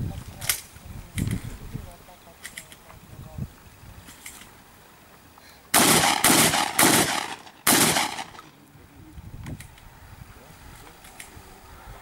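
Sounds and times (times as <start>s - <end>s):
shotgun shots: 5.7s - 8.5s.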